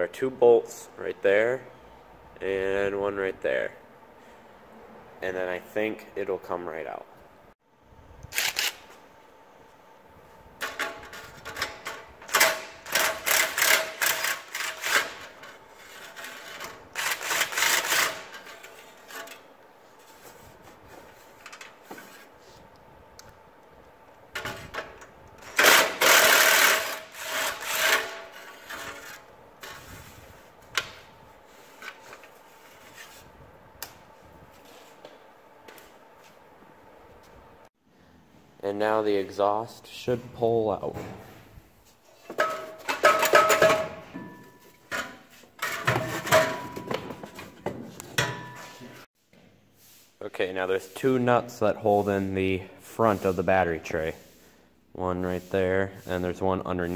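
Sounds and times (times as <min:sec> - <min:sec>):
impact wrench bursts: 0:25.4 - 0:28.2.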